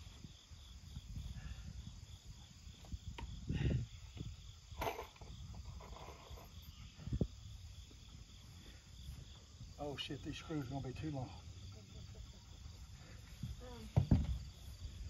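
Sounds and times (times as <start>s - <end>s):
insects chirping: 0.0s - 15.0s
knocks and thumps on wood: 13.9s - 14.4s.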